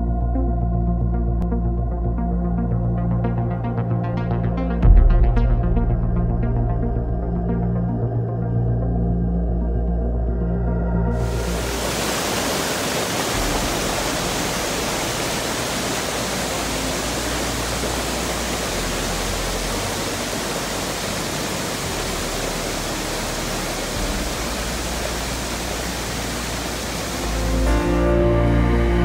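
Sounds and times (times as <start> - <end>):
waterfall rushing over rocks: 11.2 - 29.0.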